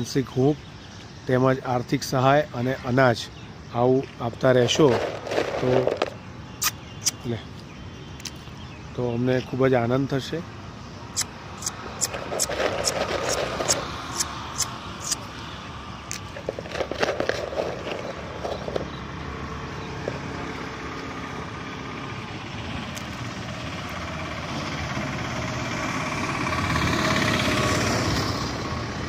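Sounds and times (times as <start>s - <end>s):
road traffic: 0.0s - 29.0s
vehicle passing: 11.0s - 16.1s, 17.4s - 29.0s
sharp clicks: 11.2s - 15.2s.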